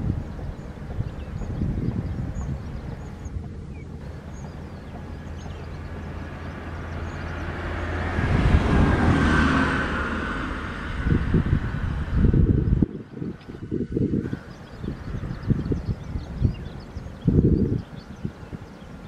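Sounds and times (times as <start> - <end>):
low engine drone: 0.0 - 19.0
wind buffeting microphone: 0.0 - 19.0.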